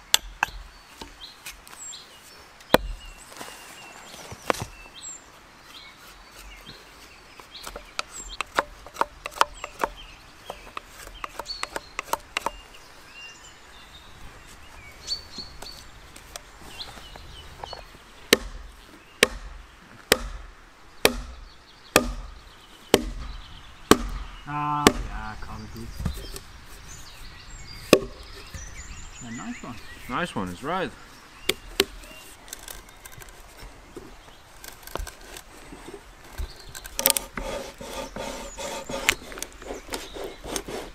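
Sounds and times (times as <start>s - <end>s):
birds chirping: 0.0s - 40.9s
heavy strikes on wood: 2.7s - 3.2s, 18.3s - 25.4s, 27.9s - 28.6s
knife whittling wood: 36.4s - 40.9s.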